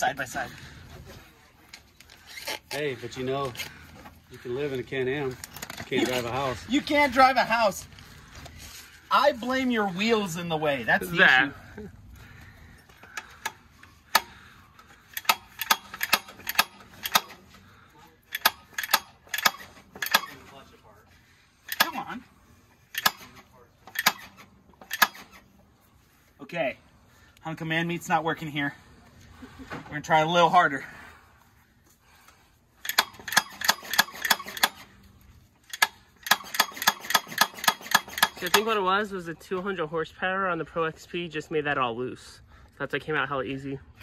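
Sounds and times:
ratchet wrench clicking: 0:15.1 - 0:17.4, 0:18.3 - 0:20.4, 0:21.7 - 0:22.0, 0:22.9 - 0:23.3, 0:23.9 - 0:25.4, 0:32.8 - 0:34.8, 0:35.6 - 0:38.7.

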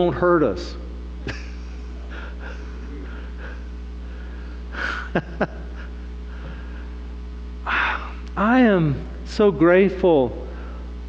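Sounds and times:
low electrical hum: 0:00.0 - 0:11.0
short breathy laugh: 0:01.3 - 0:06.9.

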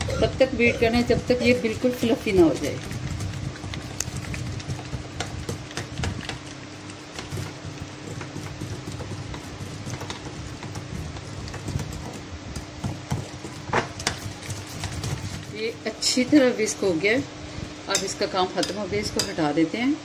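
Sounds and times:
whisk clicking against glass bowl: 0:07.1 - 0:16.6.

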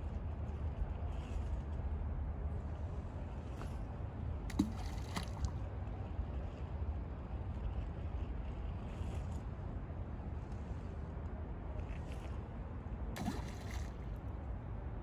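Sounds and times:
steady low rumble: 0:00.0 - 0:15.0
water sloshing and lapping: 0:02.7 - 0:09.9, 0:11.6 - 0:14.6.

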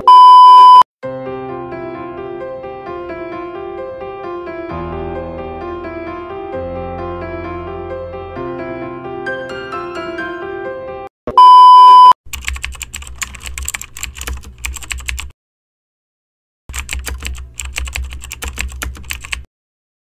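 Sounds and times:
electronic beep: 0:00.0 - 0:00.8, 0:11.3 - 0:12.2
keyboard typing: 0:12.3 - 0:15.3, 0:16.7 - 0:19.5.

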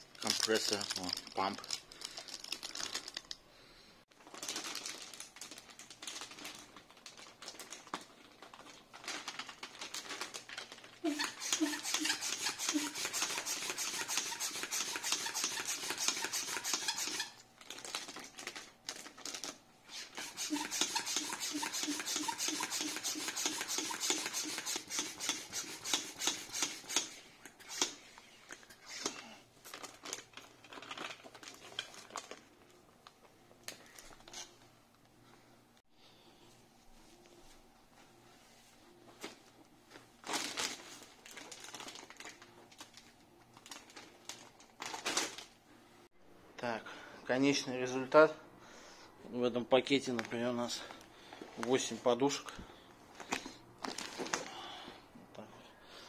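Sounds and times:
hand pump strokes with rushing air: 0:11.1 - 0:17.3, 0:19.9 - 0:28.0.

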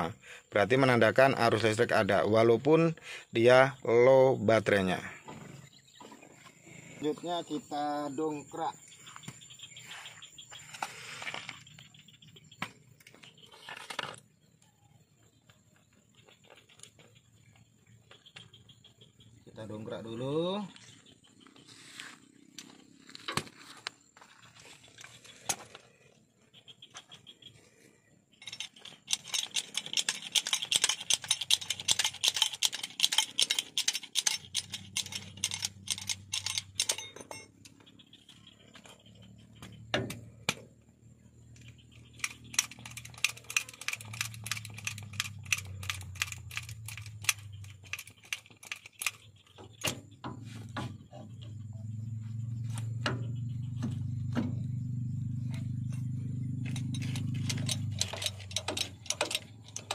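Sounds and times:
bottle jack clicking and rattling: 0:28.4 - 0:37.7, 0:42.0 - 0:50.0, 0:56.0 - 0:59.9.

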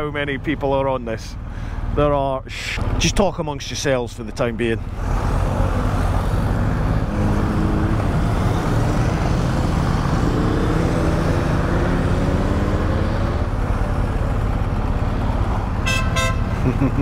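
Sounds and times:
motorcycles riding past: 0:05.0 - 0:17.0.

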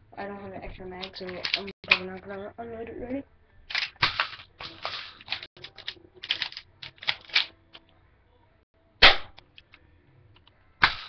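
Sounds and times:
plastic toy gun clicking and rattling: 0:01.0 - 0:02.2, 0:03.7 - 0:07.5
sharp crack: 0:03.7 - 0:07.5, 0:09.0 - 0:09.8, 0:10.8 - 0:11.0.

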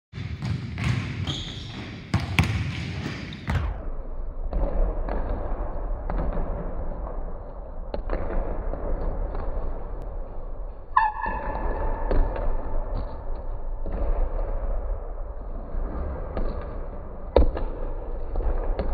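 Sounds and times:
basketballs bouncing on hardwood: 0:00.2 - 0:03.8.

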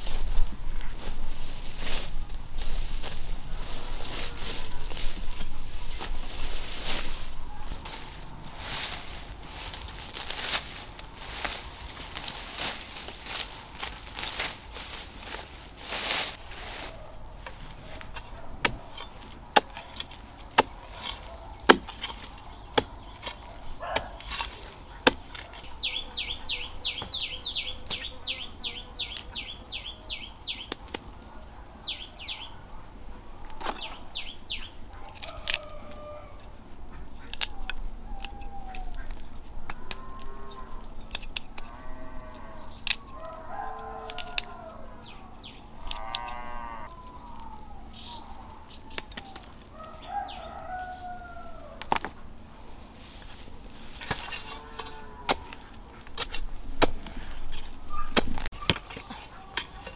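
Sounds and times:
chickens clucking: 0:16.4 - 0:59.9.

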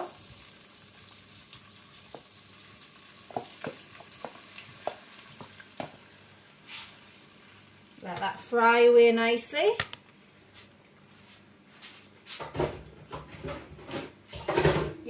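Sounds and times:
oil crackling and popping: 0:00.0 - 0:06.1
tofu sizzling in hot oil: 0:00.0 - 0:07.9.

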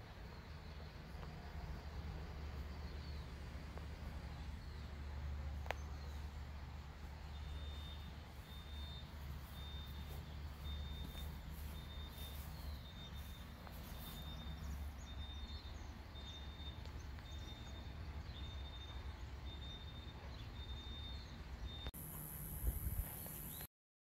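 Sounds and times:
faint chirps: 0:07.0 - 0:23.7.

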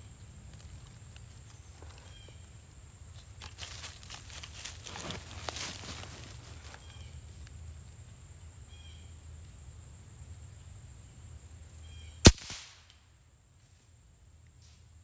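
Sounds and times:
air rifle shot crack: 0:12.2 - 0:12.9.

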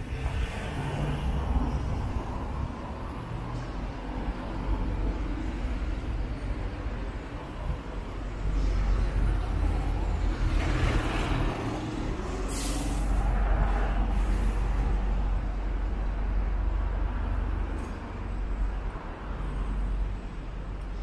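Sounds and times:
heavy vehicle engine rumble: 0:00.0 - 0:21.0
street traffic: 0:00.0 - 0:21.0
air brakes hissing: 0:12.4 - 0:13.4.

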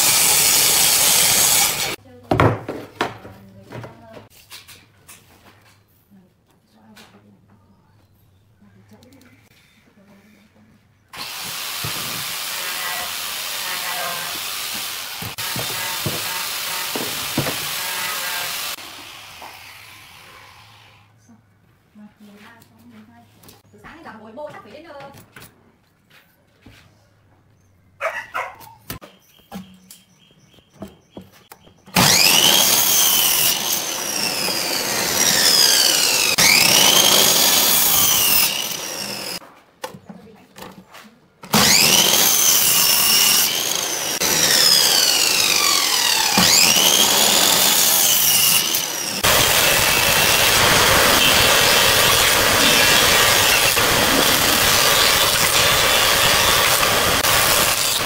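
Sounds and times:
miter saw cutting wood: 0:00.0 - 0:02.0, 0:11.2 - 0:21.1, 0:31.9 - 0:39.4, 0:41.5 - 0:58.0
thickness planer running: 0:00.0 - 0:02.0, 0:11.2 - 0:20.3, 0:31.9 - 0:39.4, 0:41.5 - 0:58.0.

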